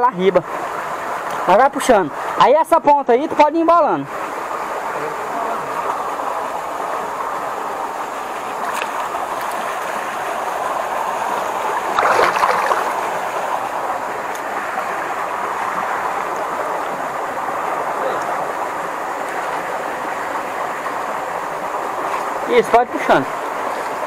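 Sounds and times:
water sloshing and splashing: 7.9 - 17.9.

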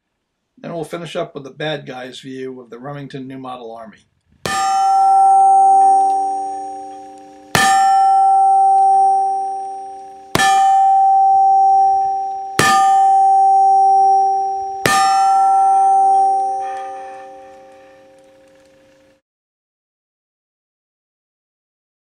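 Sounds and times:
metallic ringing: 4.5 - 19.1.

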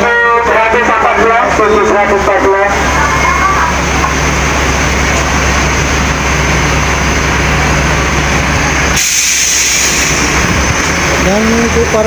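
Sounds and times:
bus engine idling: 0.0 - 12.0
air hiss: 8.9 - 10.4.

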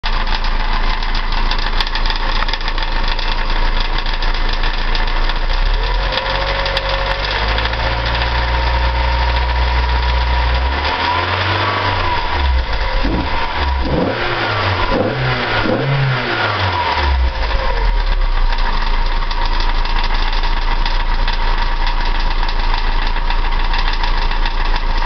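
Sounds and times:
car engine idling: 0.0 - 25.0
fast even engine tapping: 11.2 - 16.5.

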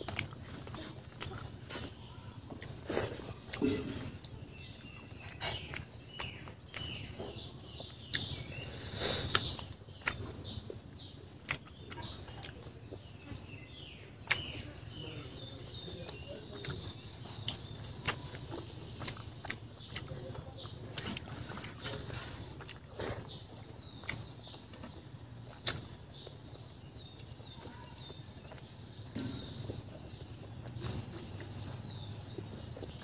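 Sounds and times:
birds chirping: 0.0 - 33.0
man chewing food: 0.0 - 33.0
lip smacks and mouth clicks: 9.2 - 10.2, 14.2 - 14.6, 25.5 - 25.9.

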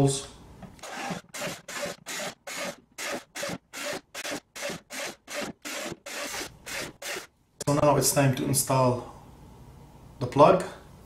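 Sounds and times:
cordless drill boring through plastic: 0.8 - 7.3.

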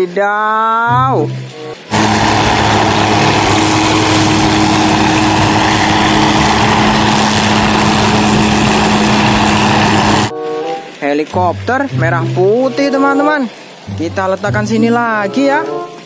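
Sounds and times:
helicopter hovering: 1.8 - 10.3.

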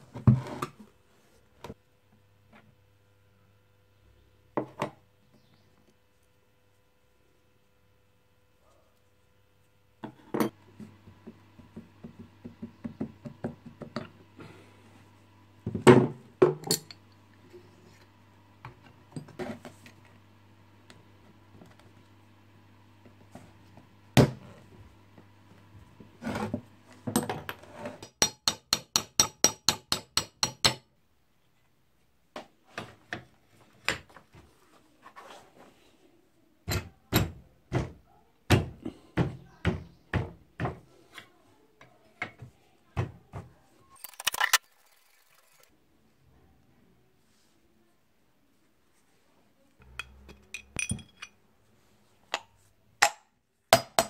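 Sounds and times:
metal parts clinking on wooden bench: 16.6 - 17.0, 50.0 - 51.4.

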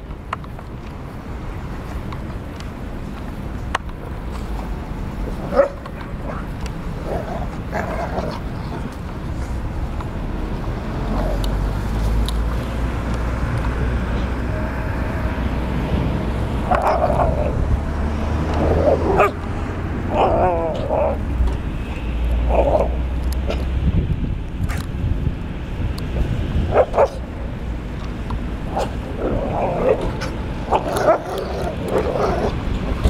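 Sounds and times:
dogs yipping and barking: 5.4 - 8.6, 16.6 - 17.6, 18.6 - 19.4, 20.1 - 21.2, 26.7 - 27.3, 28.7 - 32.6.

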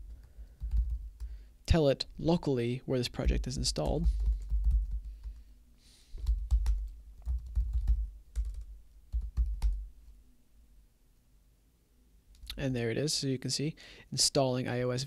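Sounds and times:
computer keyboard typing: 0.0 - 1.3, 3.8 - 5.4, 6.2 - 9.9.

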